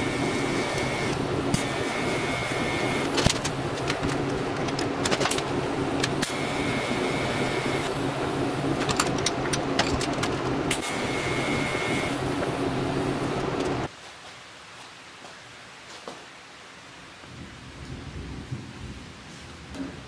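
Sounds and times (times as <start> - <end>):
welder hum: 0.0 - 13.9
welding arc buzzing: 0.0 - 13.9.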